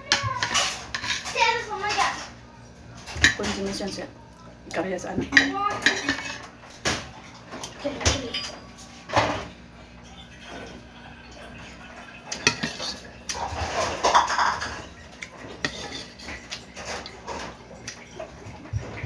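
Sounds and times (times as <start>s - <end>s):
clicks and knocks on a plate: 12.3s - 19.0s.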